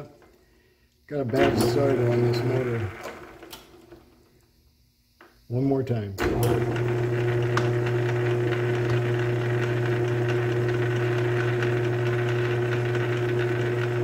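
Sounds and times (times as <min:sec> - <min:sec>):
lathe running hum: 0:01.3 - 0:04.0, 0:06.2 - 0:14.0.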